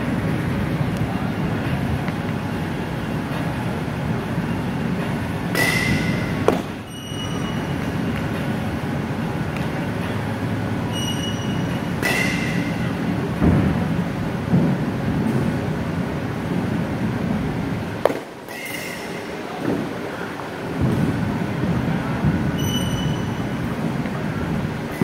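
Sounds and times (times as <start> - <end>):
steady low rumble: 0.0 - 6.9, 11.6 - 18.1, 20.6 - 22.6
baseball hitting mitt: 5.5 - 6.8, 18.0 - 18.8.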